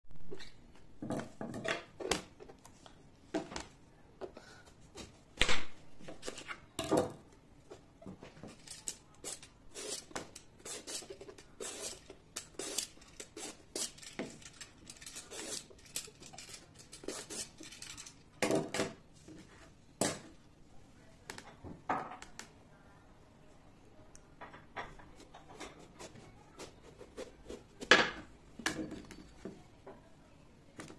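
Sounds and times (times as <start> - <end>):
vegetable peeler scraping: 8.6 - 18.2.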